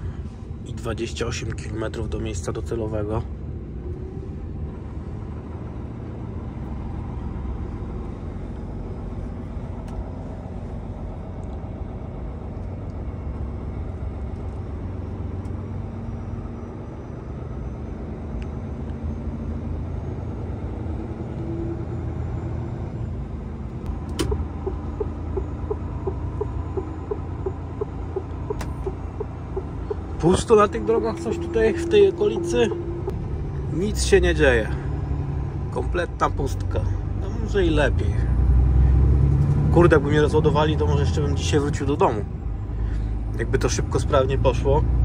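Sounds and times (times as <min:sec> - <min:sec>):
truck diesel engine running: 0:03.4 - 0:45.0
turn signal ticking: 0:23.8 - 0:33.3.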